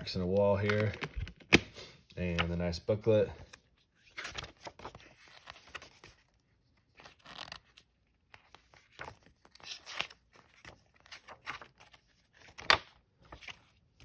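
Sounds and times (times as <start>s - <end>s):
paper pages rustling: 3.3s - 14.0s.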